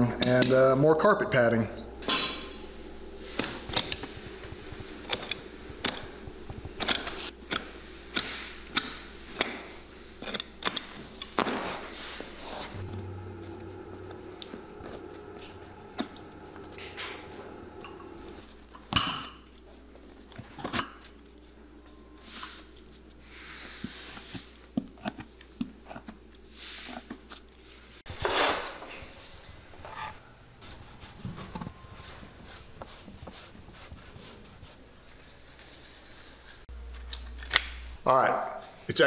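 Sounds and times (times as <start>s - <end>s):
steady hum: 0.0s - 24.8s, 28.8s - 35.6s, 36.4s - 39.0s
hand tools clicking and tapping: 5.0s - 11.4s.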